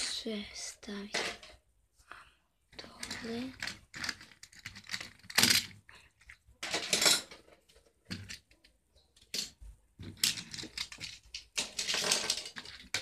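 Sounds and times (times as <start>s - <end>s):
toy cars clicking on concrete: 2.8s - 7.4s, 10.1s - 13.0s
toy cars scraping clatters: 2.8s - 13.0s.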